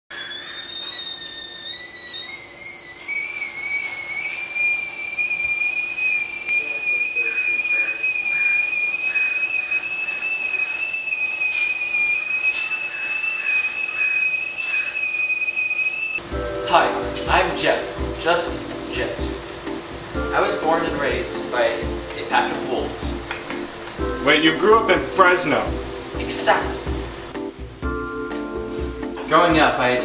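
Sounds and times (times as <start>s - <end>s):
kettle whistling: 0.1s - 28.1s.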